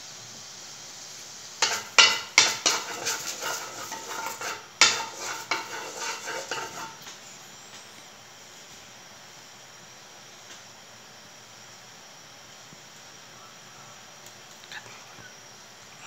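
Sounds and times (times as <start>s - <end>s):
wooden spatula scraping metal wok: 1.6s - 7.1s.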